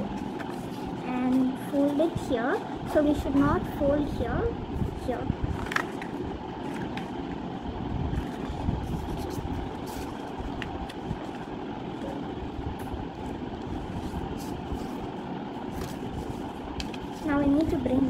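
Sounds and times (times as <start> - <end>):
low background rumble: 0.0 - 18.0
paper rustling: 0.1 - 2.1, 8.1 - 12.2, 13.6 - 17.9.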